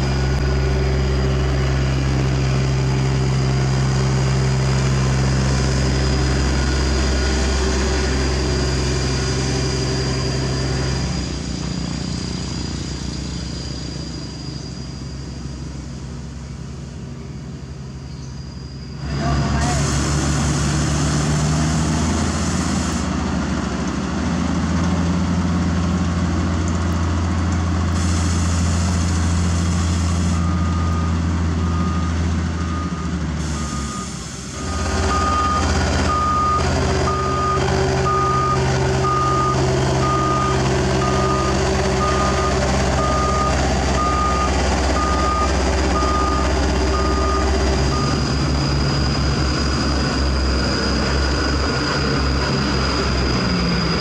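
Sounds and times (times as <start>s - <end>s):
reversing alarm beeping: 0.0s - 11.4s, 29.0s - 54.0s
diesel engine running: 0.0s - 54.0s.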